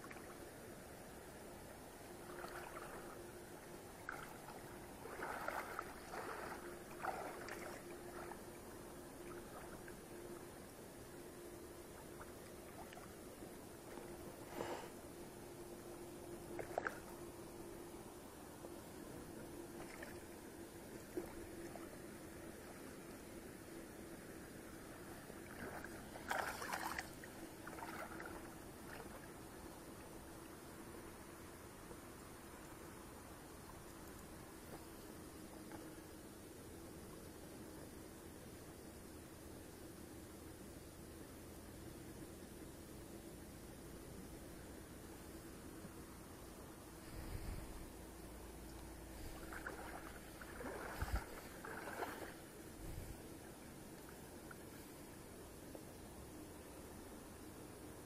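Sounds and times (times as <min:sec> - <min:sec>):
water sloshing and splashing: 0:02.2 - 0:03.3, 0:04.0 - 0:08.6, 0:16.5 - 0:17.1, 0:19.7 - 0:20.3, 0:25.4 - 0:29.4, 0:49.2 - 0:53.1
fish splashing in water: 0:25.5 - 0:29.2, 0:49.3 - 0:52.4.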